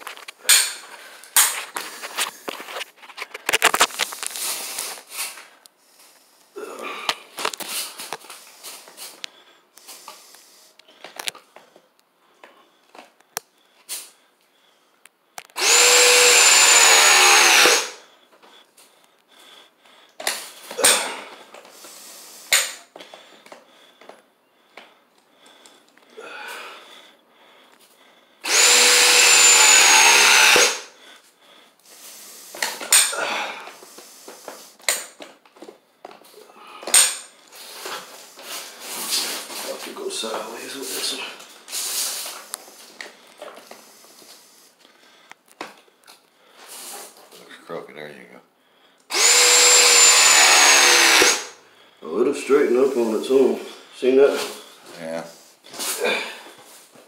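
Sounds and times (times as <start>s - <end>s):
press tool motor whine: 15.6s - 18.0s, 28.4s - 30.8s, 49.1s - 51.5s.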